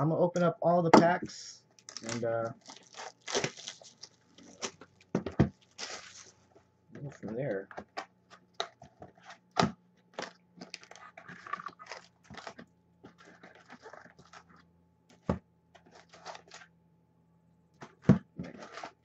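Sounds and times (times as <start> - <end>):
plastic wrap crinkling and tearing: 1.8 - 6.5, 10.1 - 12.6.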